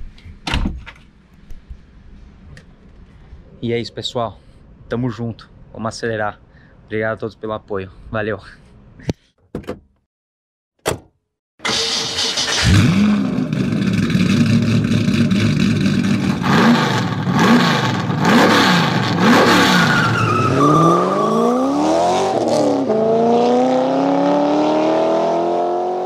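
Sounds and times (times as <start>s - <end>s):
racing car engine revving: 12.5s - 26.0s.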